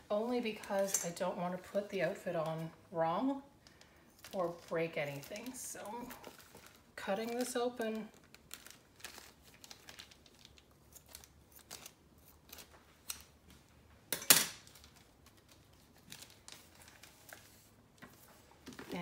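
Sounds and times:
sharp plastic crackle: 3.6 - 13.4, 14.5 - 17.9
plastic crinkling: 3.6 - 13.6, 14.6 - 19.0
scissors snipping plastic bag: 4.2 - 13.3.

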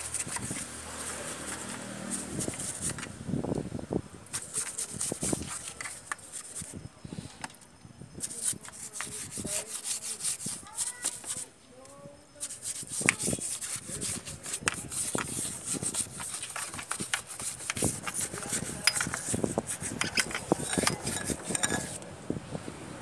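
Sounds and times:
brush scrubbing engine: 0.0 - 3.1, 4.3 - 6.7, 8.2 - 11.4, 12.4 - 22.0.

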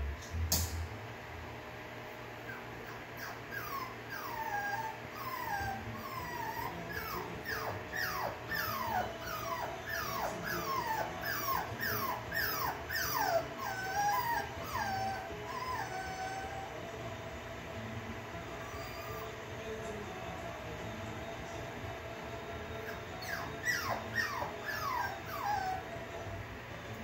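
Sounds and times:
puppy whining: 2.2 - 17.0, 18.3 - 19.8, 22.7 - 26.3.

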